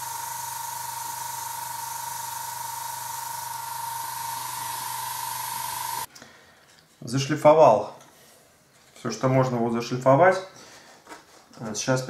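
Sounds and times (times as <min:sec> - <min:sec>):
airbrush spraying hiss: 0:00.0 - 0:06.1.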